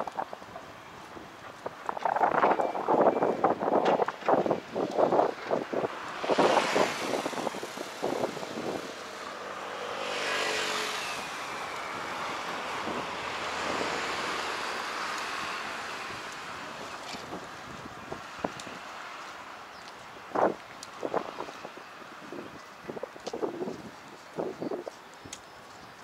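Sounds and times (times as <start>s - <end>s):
traffic rumble: 0.0s - 26.0s
vehicle passing by: 5.8s - 19.4s.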